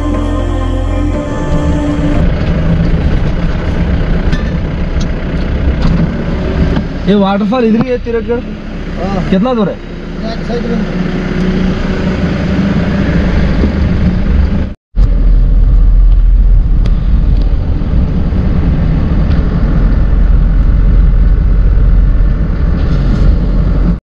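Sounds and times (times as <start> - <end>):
motorcycle running: 0.0 - 24.0
wind noise on microphone: 13.0 - 24.0.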